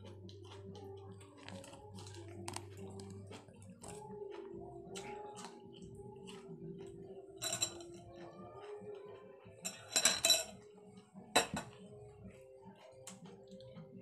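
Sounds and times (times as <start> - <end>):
dishes and cutlery clinking: 6.3 - 8.8, 9.6 - 10.7, 11.3 - 11.9.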